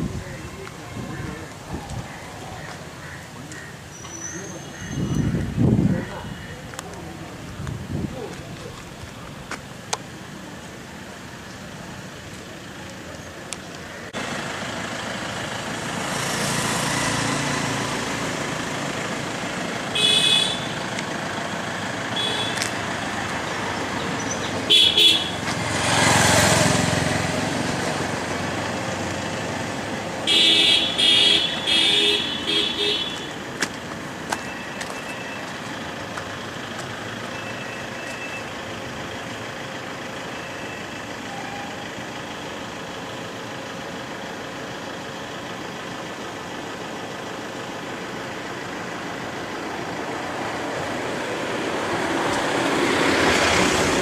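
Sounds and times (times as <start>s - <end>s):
steady road hum: 0.0s - 54.0s
vehicle passing: 14.2s - 20.0s, 21.2s - 33.5s, 49.9s - 54.0s
vehicle horn honks: 20.0s - 20.8s, 22.2s - 22.6s, 24.7s - 25.4s, 30.3s - 33.4s.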